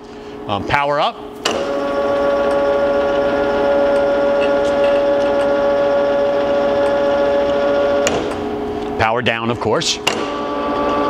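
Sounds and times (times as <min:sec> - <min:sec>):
grinder motor whining: 0:01.6 - 0:08.4, 0:10.2 - 0:11.0.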